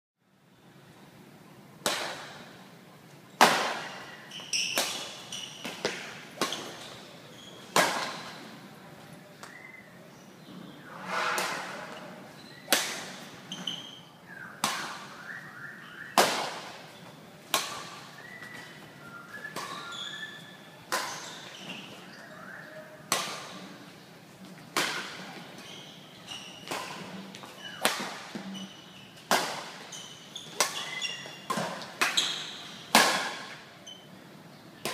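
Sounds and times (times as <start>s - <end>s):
badminton rackets hitting shuttlecock: 1.8s - 2.5s, 3.4s - 7.0s, 7.7s - 8.4s, 12.6s - 13.5s, 14.6s - 15.2s, 16.2s - 16.8s, 17.5s - 18.7s, 20.9s - 21.4s, 23.1s - 23.6s, 24.7s - 25.8s, 26.5s - 28.4s, 29.2s - 33.6s
shoes squeaking on court floor: 3.8s - 8.7s, 11.9s - 14.2s, 16.8s - 22.2s, 24.4s - 34.2s.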